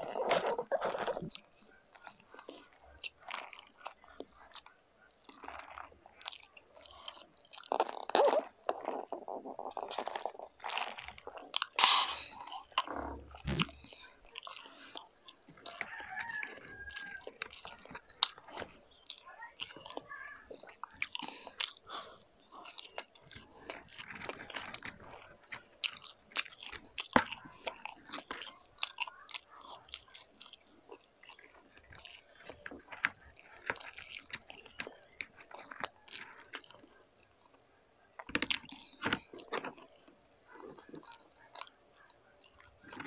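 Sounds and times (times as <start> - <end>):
person chewing crunchy food: 0.0 - 43.0.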